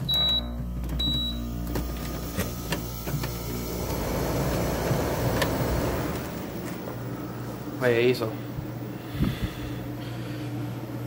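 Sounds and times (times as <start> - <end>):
low motor hum: 0.0 - 11.0
fan air rushing: 2.2 - 11.0.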